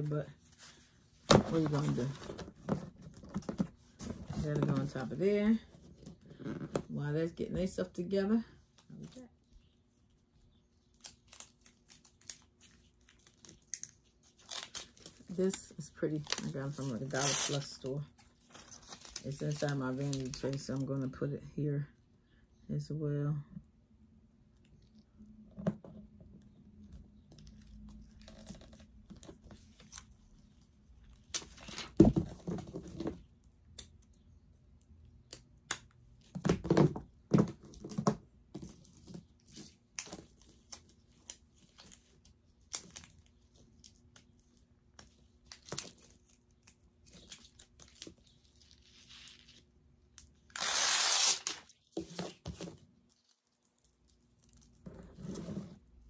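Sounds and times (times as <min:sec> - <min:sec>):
crinkles taps and rustles: 0:00.6 - 0:05.1
tearing sound: 0:50.5 - 0:51.7.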